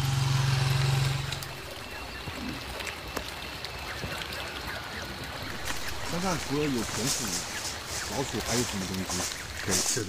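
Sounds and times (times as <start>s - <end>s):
motorcycle engine drone: 0.0s - 2.9s
faint outdoor hiss: 0.0s - 10.0s
small ticks: 0.8s - 10.0s.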